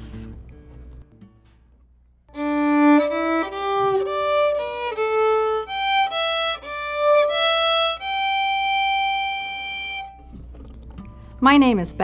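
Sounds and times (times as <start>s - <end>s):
bowed violin melody: 2.3s - 10.3s.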